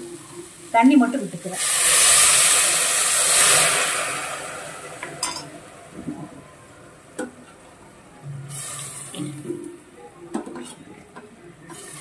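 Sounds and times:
water sizzling in hot pot: 0.0 - 6.0, 8.5 - 9.8, 11.7 - 12.0.

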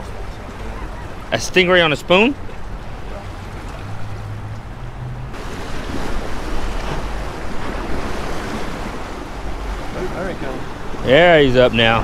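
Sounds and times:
surf breaking on rocks: 5.3 - 12.0.

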